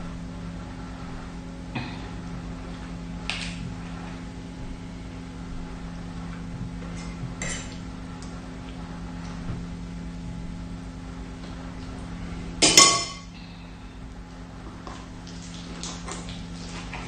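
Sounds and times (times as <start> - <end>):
steady low hum: 0.0 - 17.0
cutlery clinking against metal pot: 12.6 - 13.2.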